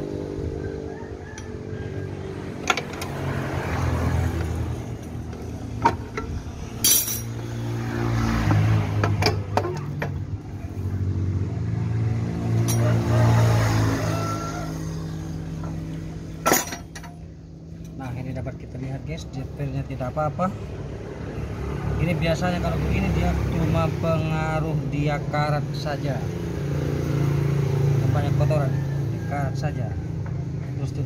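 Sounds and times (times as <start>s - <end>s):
hand tools clinking on metal: 5.8s - 7.4s, 12.6s - 13.0s, 16.4s - 18.0s.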